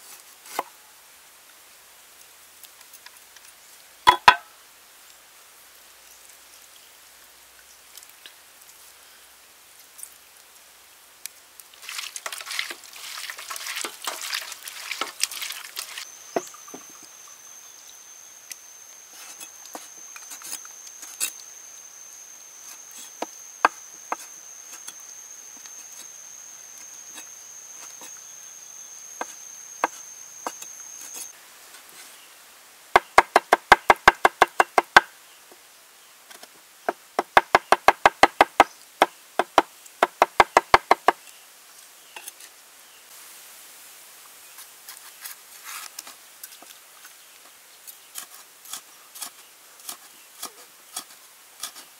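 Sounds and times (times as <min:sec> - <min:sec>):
cleaver chopping on wooden board: 0:04.1 - 0:04.5, 0:33.0 - 0:35.1, 0:36.9 - 0:38.7
wet crackling rustle: 0:11.2 - 0:21.5
high-pitched whine: 0:16.0 - 0:31.4.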